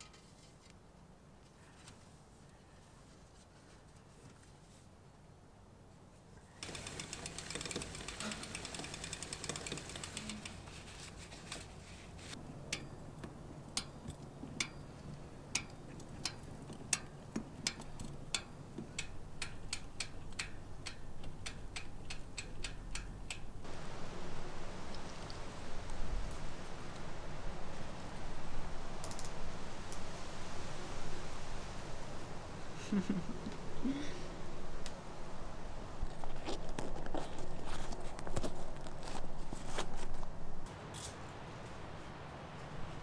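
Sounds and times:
bicycle freewheel ticking: 0:06.6 - 0:10.8.

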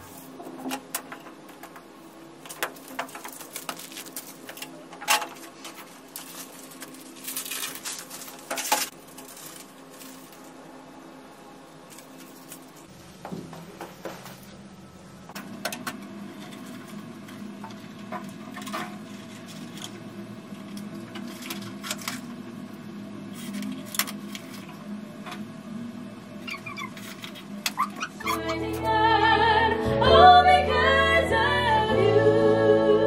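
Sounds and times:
decorations rustling and clicking: 0:00.0 - 0:10.6, 0:11.8 - 0:12.9
steady low hum: 0:00.0 - 0:33.0.

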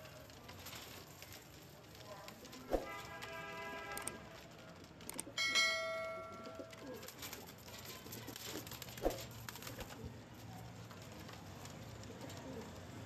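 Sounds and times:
pigeons cooing: 0:12.0 - 0:12.9.

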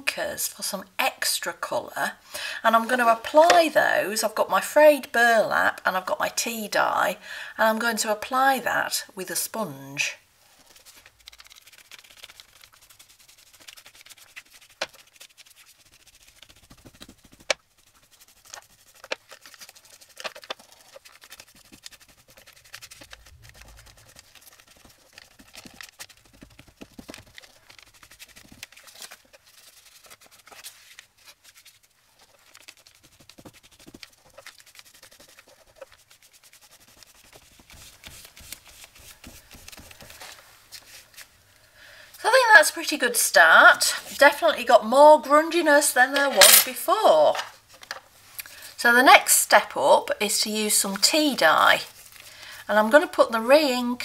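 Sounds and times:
ink pad scraping on paper: 0:10.6 - 0:28.7, 0:32.2 - 0:40.4.

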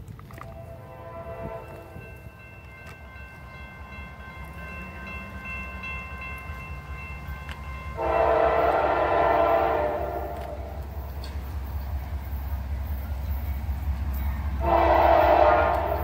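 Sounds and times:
locomotive rumble: 0:00.0 - 0:16.0
train air horn blast: 0:00.4 - 0:02.0, 0:08.0 - 0:10.8, 0:14.6 - 0:16.0.

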